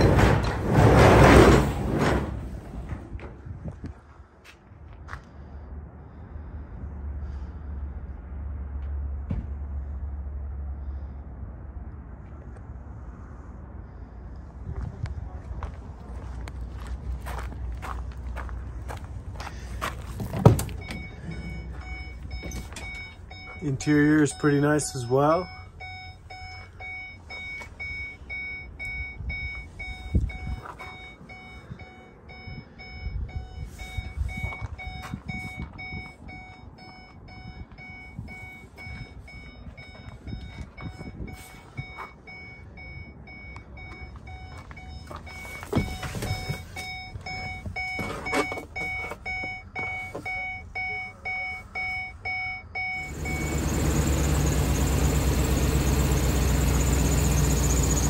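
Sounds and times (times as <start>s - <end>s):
truck engine idling: 15.2s - 58.0s
knocks and rustles in cab: 19.9s - 23.4s, 43.9s - 50.5s
vehicle warning chime: 20.5s - 58.0s.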